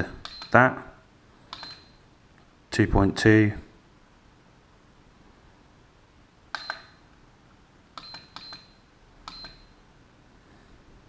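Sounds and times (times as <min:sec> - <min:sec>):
button clicks: 0:06.5 - 0:07.0, 0:08.0 - 0:09.7.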